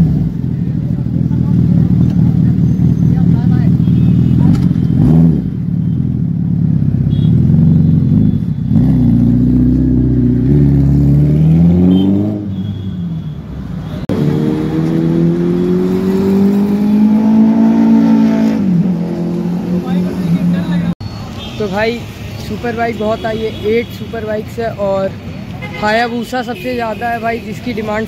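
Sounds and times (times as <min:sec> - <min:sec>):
motorcycle engine accelerating: 0:00.0 - 0:12.6, 0:14.0 - 0:21.0.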